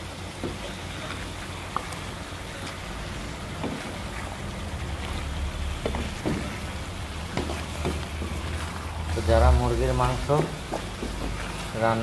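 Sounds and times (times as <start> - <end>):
chicken sizzling in oil: 0.0 - 12.0
utensil knocking against pan: 7.3 - 8.6, 10.2 - 11.5.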